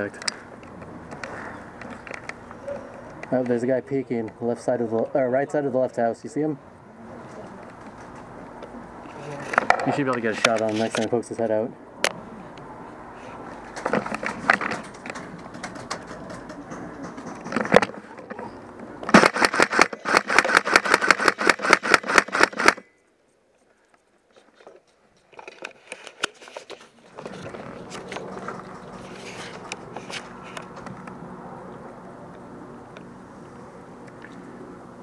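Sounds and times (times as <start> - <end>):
airsoft gun rapid shots: 19.1 - 22.8.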